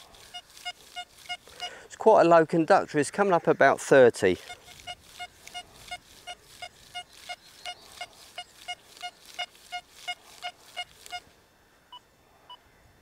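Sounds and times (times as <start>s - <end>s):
metal detector beeps: 0.0s - 1.8s, 4.4s - 11.3s.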